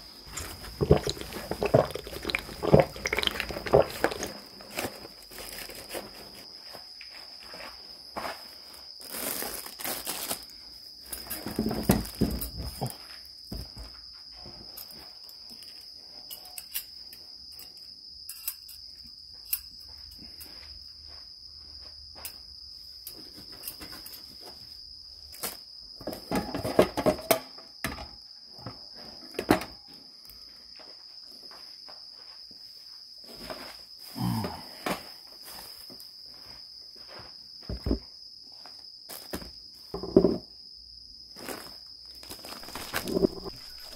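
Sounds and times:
high-pitched insect trill: 0.0s - 43.9s
plastic bags rustling: 0.1s - 6.6s, 8.8s - 10.5s, 41.4s - 43.9s.

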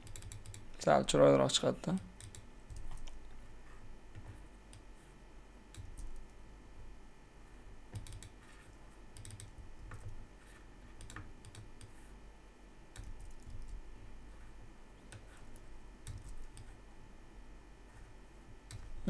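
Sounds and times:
computer keyboard typing: 0.0s - 0.7s, 1.9s - 3.2s, 5.7s - 6.4s, 7.9s - 8.4s, 9.1s - 10.2s, 11.0s - 12.0s, 12.9s - 13.8s, 15.1s - 16.8s, 18.7s - 18.9s.

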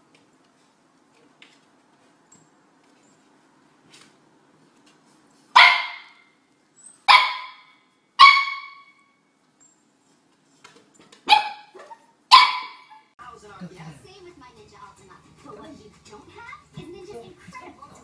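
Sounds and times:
puppy barking: 5.6s - 6.2s, 7.1s - 9.0s, 11.2s - 13.1s.

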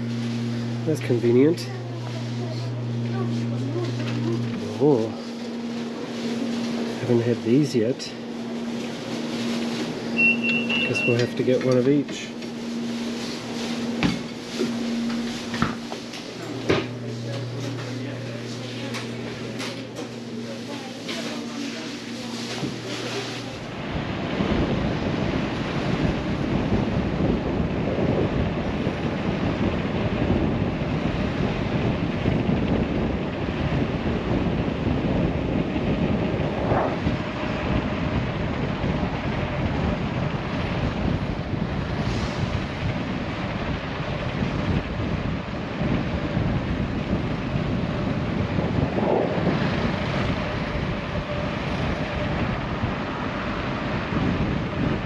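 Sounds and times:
short high-pitched chirps: 10.2s - 11.2s
wind buffeting microphone: 23.6s - 55.0s.

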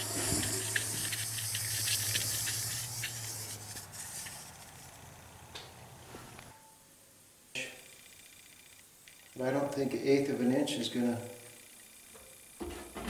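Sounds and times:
steady hiss: 0.0s - 6.5s
chalk line reel clicking and rattling: 0.5s - 5.0s.

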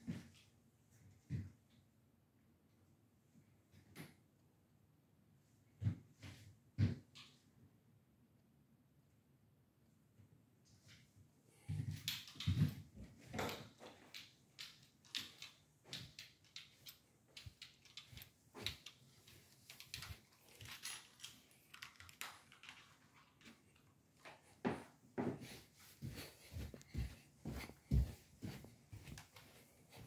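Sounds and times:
footfalls on carpeted stairs: 24.6s - 30.0s
footsteps on carpet: 24.6s - 30.0s.

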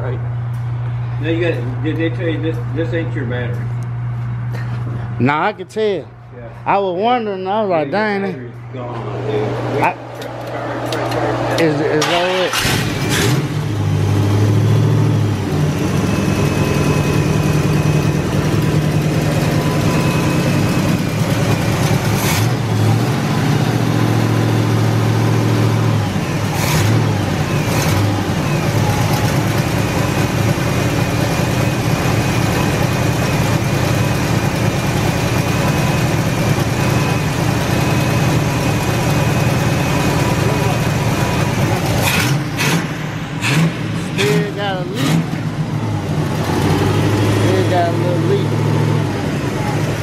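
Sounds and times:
thin steady whine: 0.0s - 12.3s, 15.2s - 22.0s, 31.1s - 41.9s
car engine running and revving: 8.6s - 50.0s.

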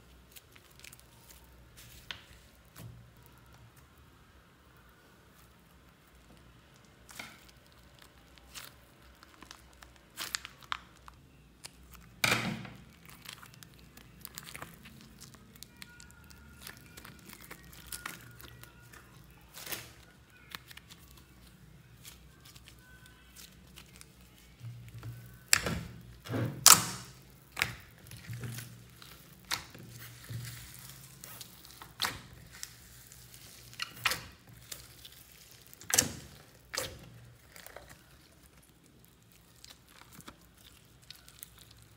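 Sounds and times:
foam beads crunching: 26.9s - 41.9s.

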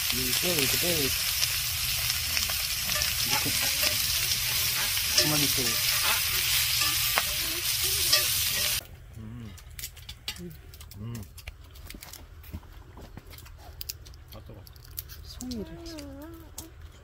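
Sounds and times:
shrimp sizzling in a pan: 0.0s - 8.8s
metal tongs clicking on pan: 2.9s - 8.8s.

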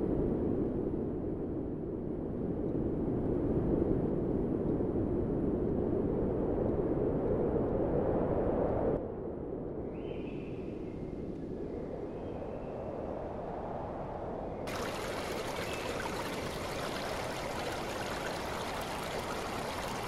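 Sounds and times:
low rushing noise: 14.7s - 20.0s.

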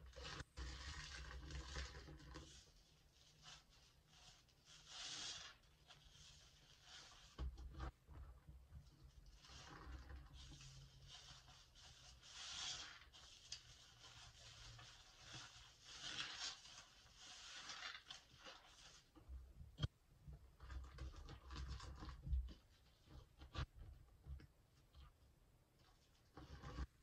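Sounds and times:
wet sponge squelching: 0.2s - 7.4s, 9.3s - 19.2s.

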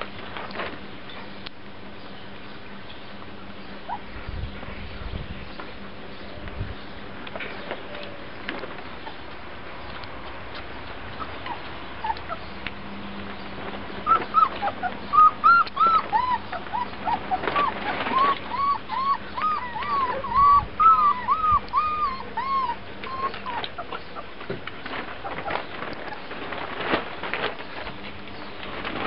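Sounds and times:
puppies squeaking and whining: 3.8s - 4.4s, 8.5s - 9.4s, 10.6s - 12.6s, 13.6s - 26.9s.

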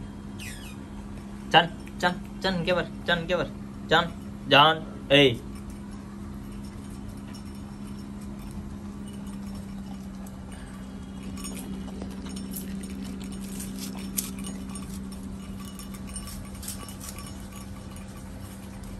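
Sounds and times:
low hum: 0.0s - 18.9s
puppy chewing and smacking: 5.5s - 18.9s.

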